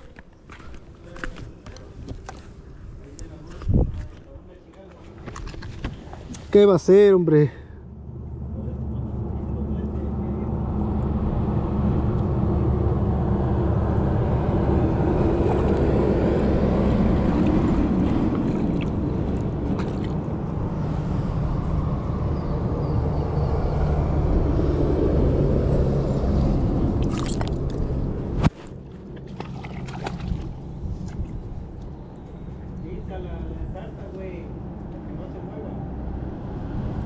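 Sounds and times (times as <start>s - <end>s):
river water rushing and gurgling: 13.2s - 22.0s, 26.2s - 31.3s.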